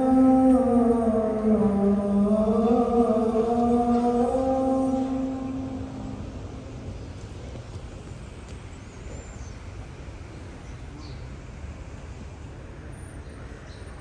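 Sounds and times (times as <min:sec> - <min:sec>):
murmur of large crowd: 0:00.0 - 0:14.0.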